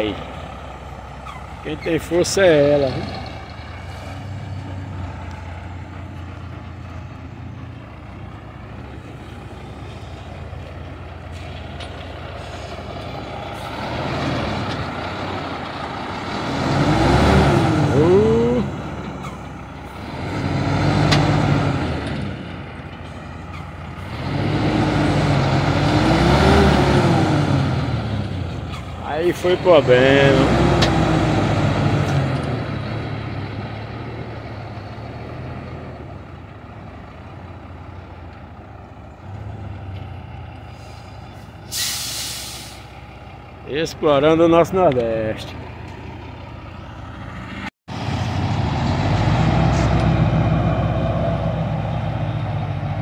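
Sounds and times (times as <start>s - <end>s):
truck engine labouring and revving: 0.0s - 53.0s.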